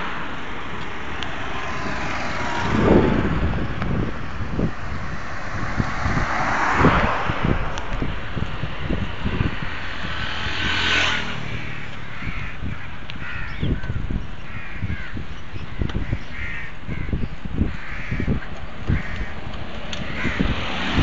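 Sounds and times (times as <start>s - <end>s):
wind buffeting microphone: 0.0s - 21.0s
birds calling: 10.8s - 20.6s.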